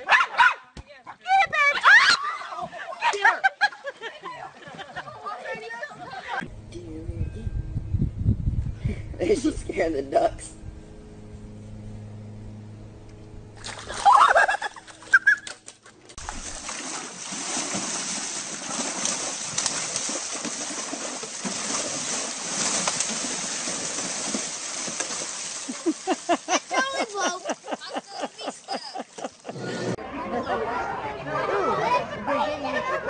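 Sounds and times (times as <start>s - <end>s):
water splashing and sloshing: 13.6s - 29.6s.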